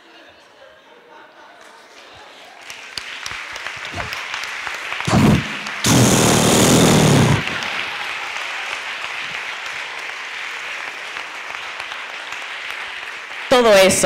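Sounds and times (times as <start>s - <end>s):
audience laughter: 0.0s - 2.6s
audience applause: 1.8s - 14.0s
harsh buzzing vocal noise: 5.1s - 7.9s.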